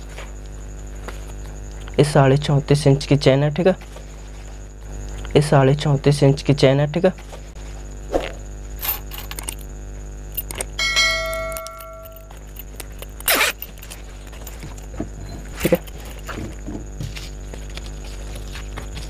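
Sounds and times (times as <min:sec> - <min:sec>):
sewing machine motor hum: 0:08.6 - 0:10.8, 0:11.7 - 0:19.0
ringing tone: 0:10.4 - 0:12.6
zipper and fabric clicks: 0:12.4 - 0:14.6.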